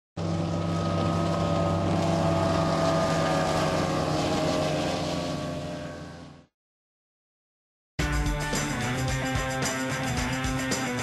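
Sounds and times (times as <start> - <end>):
outboard motor running fast: 0.2 - 6.5.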